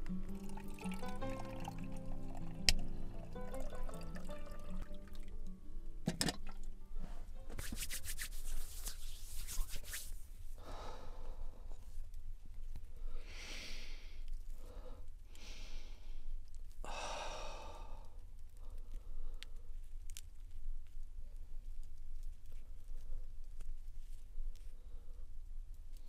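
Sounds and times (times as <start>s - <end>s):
person breathing in puffs: 10.6s - 11.9s, 13.0s - 19.7s.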